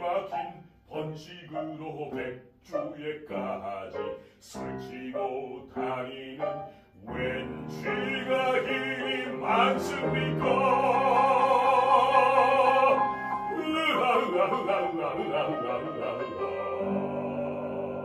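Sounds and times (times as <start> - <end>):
grand piano accompaniment: 0.0 - 18.0
operatic bass voice singing: 7.2 - 18.0.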